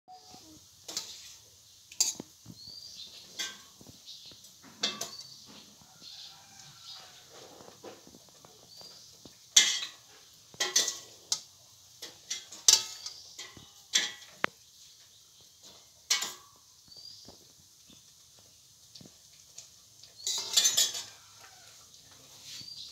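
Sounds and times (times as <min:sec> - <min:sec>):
metal spatula scraping a pan: 0:00.1 - 0:14.5, 0:20.1 - 0:22.9.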